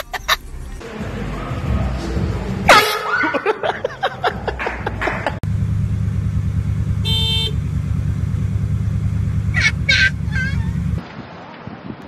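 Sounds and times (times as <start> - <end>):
car engine hum: 0.0 - 2.6, 4.2 - 11.0
car horn toot: 2.7 - 3.3, 7.0 - 7.7.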